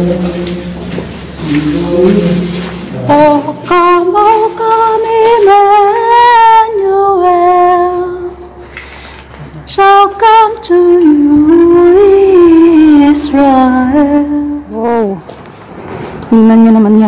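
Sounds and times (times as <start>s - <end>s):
woman singing: 1.4s - 8.6s, 9.7s - 15.3s, 16.3s - 17.0s.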